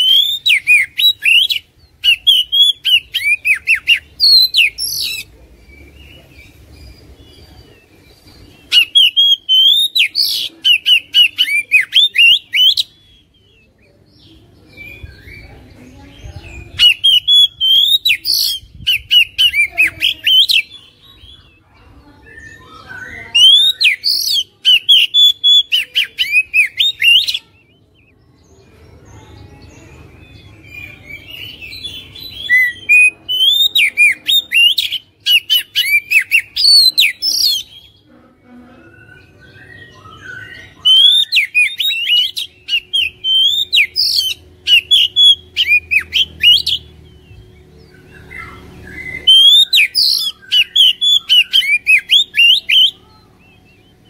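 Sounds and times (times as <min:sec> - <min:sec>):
bird singing whistled phrases: 0:00.0 - 0:05.3, 0:08.7 - 0:13.1, 0:16.7 - 0:20.8, 0:22.2 - 0:27.8, 0:30.7 - 0:37.8, 0:39.0 - 0:54.0.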